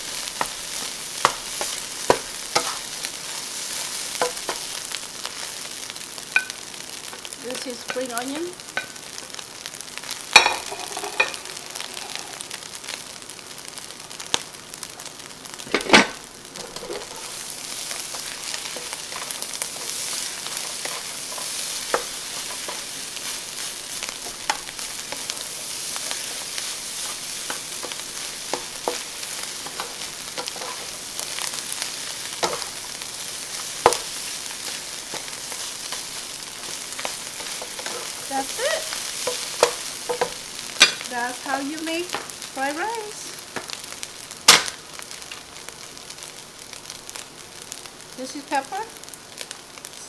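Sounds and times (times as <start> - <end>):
fried rice sizzling in a wok: 0.0 - 50.0
spatula scraping and knocking pan: 0.2 - 4.8, 10.4 - 12.4, 15.8 - 32.9, 33.5 - 41.1.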